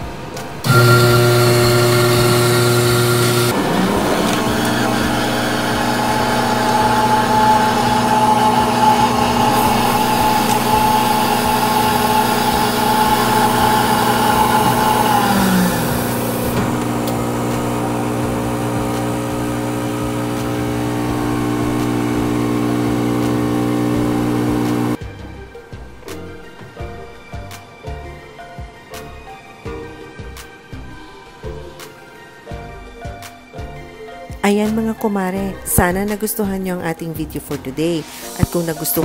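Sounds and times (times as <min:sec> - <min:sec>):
coffee machine humming: 0:00.6 - 0:25.0.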